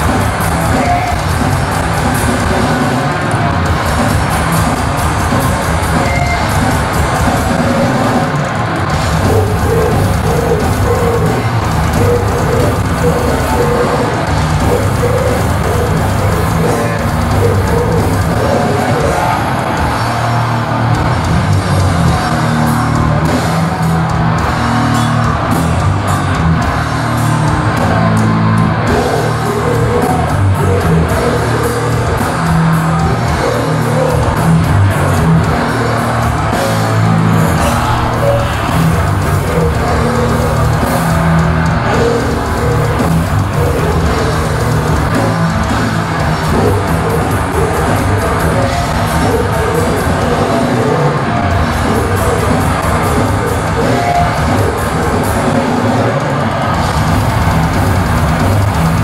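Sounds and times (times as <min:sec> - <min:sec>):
bass guitar: 0:00.0 - 0:59.0
distorted electric guitars: 0:00.0 - 0:59.0
pounding drum kit: 0:00.0 - 0:59.0
vocalist growling: 0:09.0 - 0:19.9, 0:28.7 - 0:57.0.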